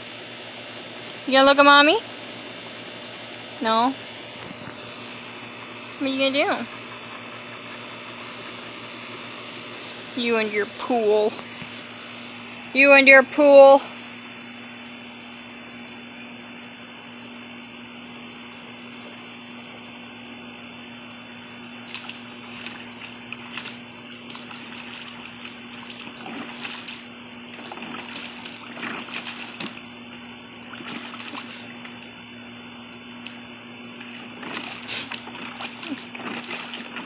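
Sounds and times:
steady low hum: 0.0s - 37.0s
water splashing in a plastic pool: 21.8s - 32.1s, 34.0s - 37.0s.

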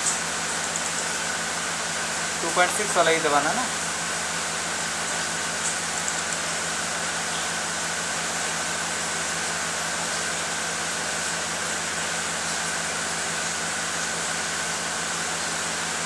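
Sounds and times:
fan running: 0.0s - 16.0s.

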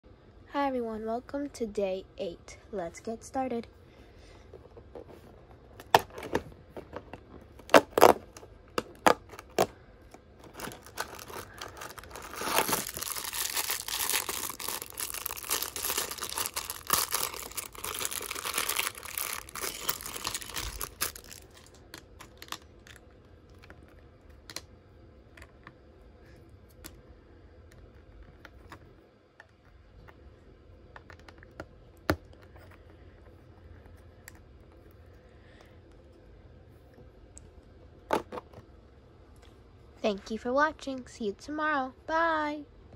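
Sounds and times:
plastic bag tearing and crinkling: 7.6s - 9.7s, 10.4s - 23.0s.

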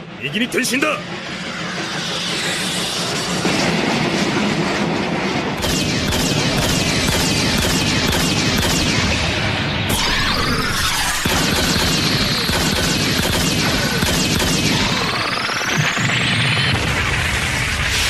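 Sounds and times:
speeding train rumble and clatter: 0.0s - 18.0s.

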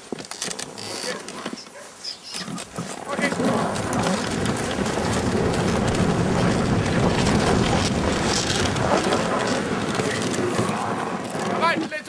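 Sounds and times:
wind buffeting microphone: 3.1s - 11.7s.

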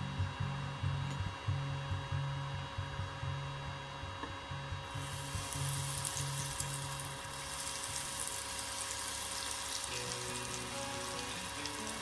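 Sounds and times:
frying oil sizzling: 4.9s - 12.0s.

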